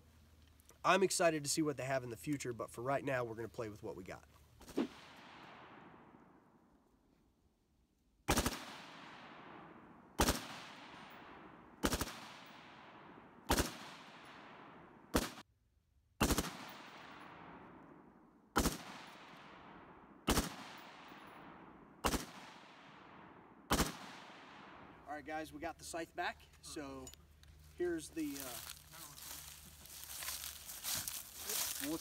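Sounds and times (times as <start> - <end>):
rifle shots echoing: 8.3 - 15.4, 16.2 - 25.0.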